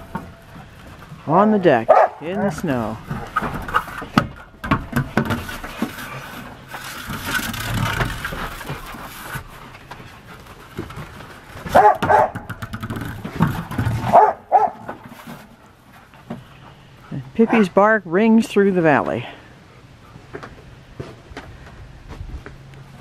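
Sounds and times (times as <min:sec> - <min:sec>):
dog barking: 0:01.9 - 0:02.2, 0:11.7 - 0:12.4, 0:14.1 - 0:14.9
ball knocking on wooden deck: 0:11.7 - 0:14.2.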